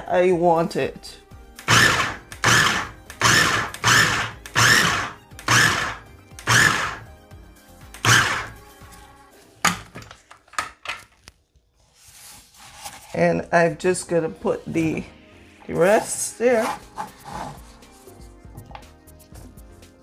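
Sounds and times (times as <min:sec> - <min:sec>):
food processor pulsing: 0:01.6 - 0:07.1, 0:08.0 - 0:08.6.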